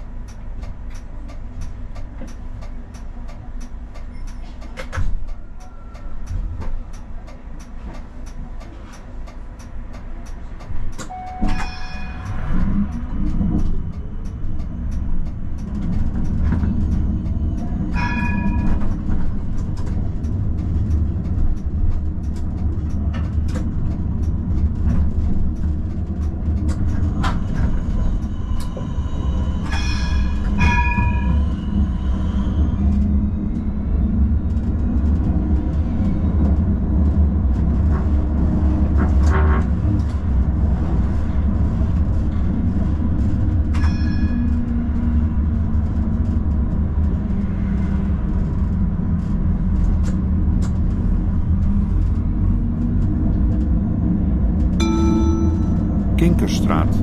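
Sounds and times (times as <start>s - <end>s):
tram rumbling along rails: 0.0s - 57.0s
short ringing tones: 54.8s - 56.2s.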